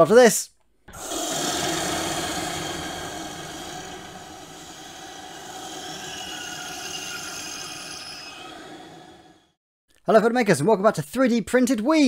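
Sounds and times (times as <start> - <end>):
noisy rumbling drone: 0.9 - 9.5.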